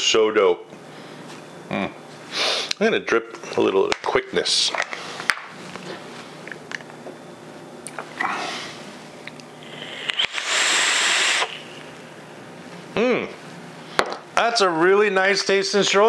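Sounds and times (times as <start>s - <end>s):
vape hiss: 9.6s - 12.0s.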